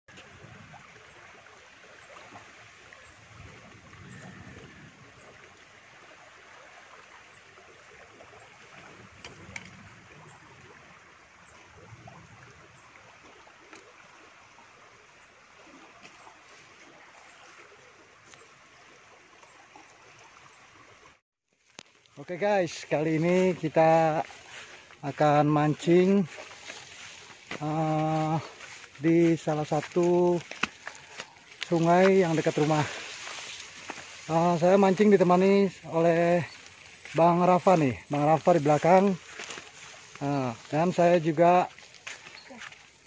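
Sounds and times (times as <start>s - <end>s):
small ticks and rustles: 21.6s - 22.4s, 25.9s - 43.0s.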